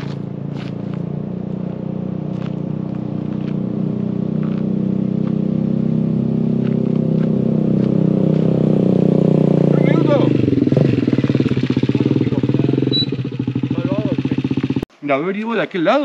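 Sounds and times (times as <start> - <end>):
motorcycle engine approaching: 0.0 - 14.9.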